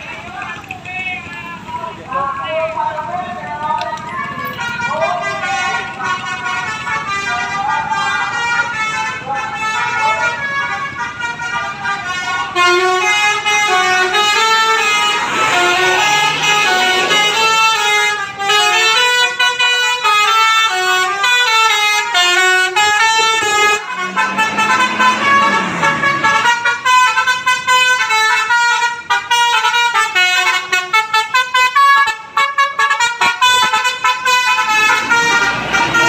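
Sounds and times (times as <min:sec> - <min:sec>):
bus horns playing melody: 0:00.0 - 0:36.0.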